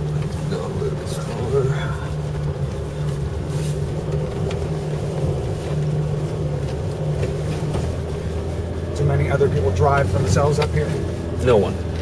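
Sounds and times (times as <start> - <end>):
truck engine droning: 0.0 - 12.0.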